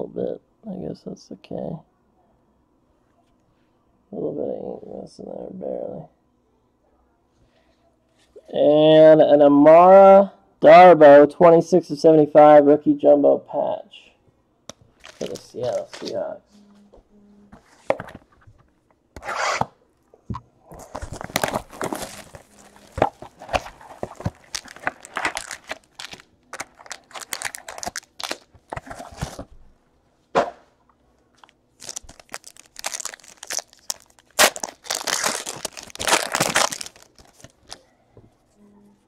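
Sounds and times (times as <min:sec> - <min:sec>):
foil card pack crinkling: 0:15.0 - 0:16.2, 0:20.8 - 0:29.5, 0:31.4 - 0:37.8
foil wrapper tearing: 0:21.1 - 0:28.6, 0:31.4 - 0:37.8.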